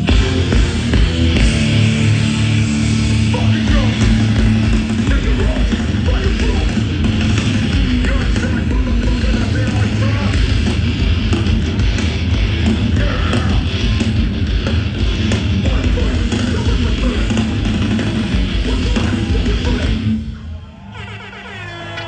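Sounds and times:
hardcore band playing live: 0:00.0 - 0:22.0.

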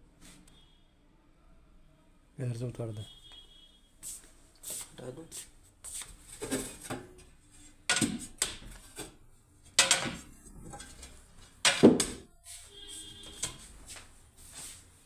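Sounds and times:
hard objects knocking: 0:06.4 - 0:12.3.

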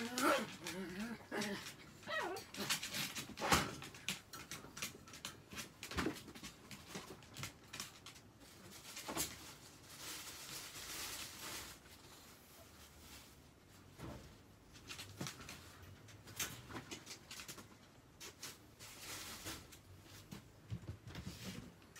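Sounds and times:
soft rustle: 0:06.3 - 0:21.9.

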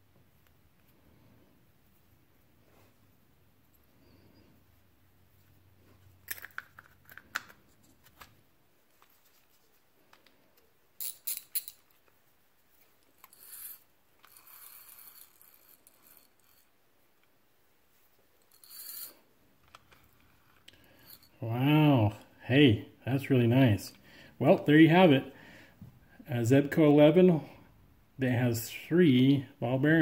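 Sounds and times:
fishing reel clicks and scrapes: 0:13.2 - 0:16.6.

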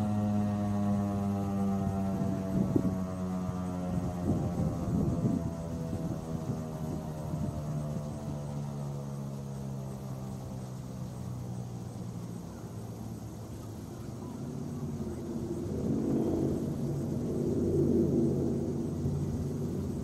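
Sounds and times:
rotating siren winding down: 0:00.0 - 0:10.9.

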